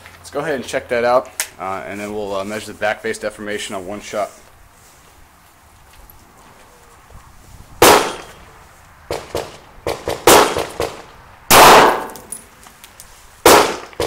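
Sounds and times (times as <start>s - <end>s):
pistol shots: 7.8s - 8.3s, 9.1s - 12.4s, 13.4s - 14.0s.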